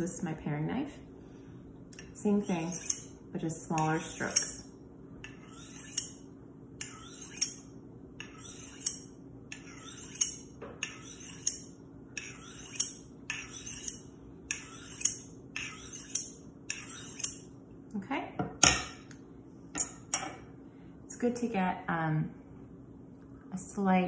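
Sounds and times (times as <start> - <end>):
faint steady hum: 0.0 - 24.0
knife scraping on honing steel: 2.0 - 17.5.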